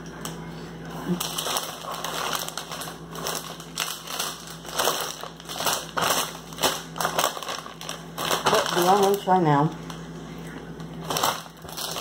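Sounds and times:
plastic snack bag crinkling: 0.2 - 12.0.

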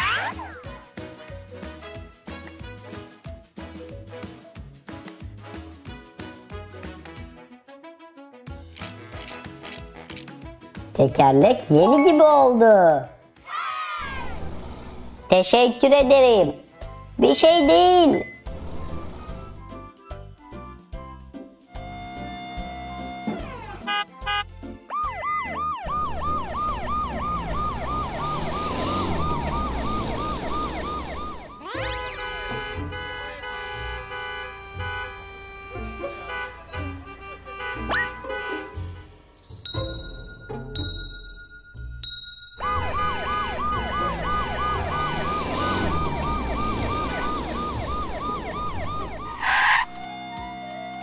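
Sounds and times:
toy electronic siren: 21.7 - 35.9, 42.6 - 51.0.

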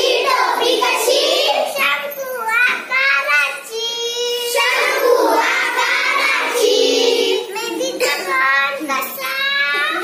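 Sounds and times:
girls singing together: 0.0 - 1.8, 4.1 - 8.2.

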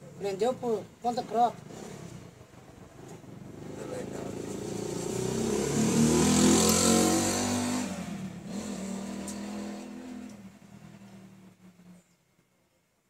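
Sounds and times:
vehicle engine revving by: 1.6 - 11.5.

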